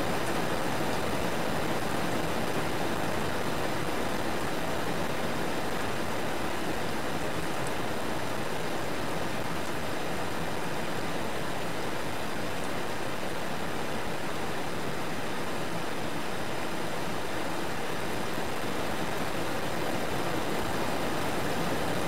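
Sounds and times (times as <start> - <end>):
steady rain falling: 0.0 - 22.0.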